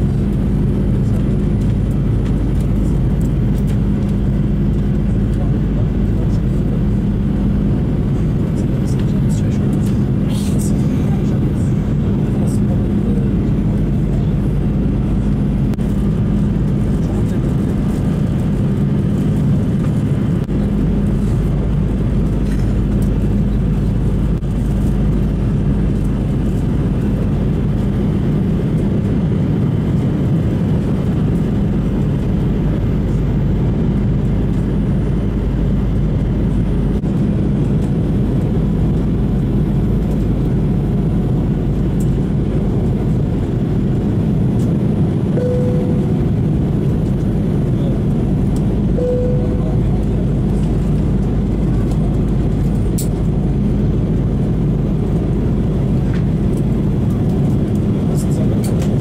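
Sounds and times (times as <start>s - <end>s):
constant low hum: 0.0s - 59.0s
jet engine and airflow rush: 0.0s - 59.0s
short tone: 45.4s - 46.2s, 49.0s - 49.9s.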